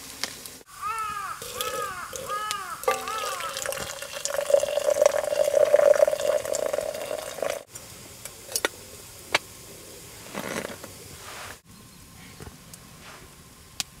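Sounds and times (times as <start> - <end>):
liquid pouring into a cup: 1.4 - 7.7
soft rustle: 10.1 - 11.6, 12.2 - 13.4.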